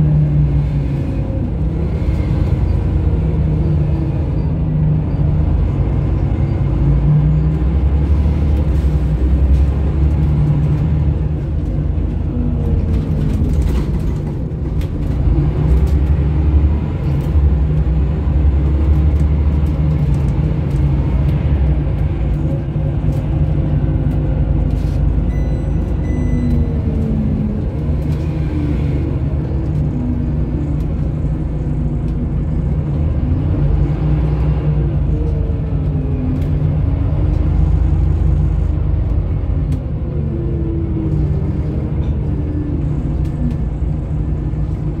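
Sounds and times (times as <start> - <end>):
bus engine rumble and whine: 0.0 - 45.0
short high beeps: 25.3 - 26.6.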